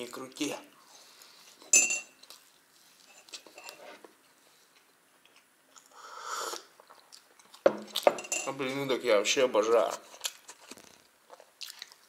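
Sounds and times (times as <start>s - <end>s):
mouth chewing: 10.0s - 12.0s.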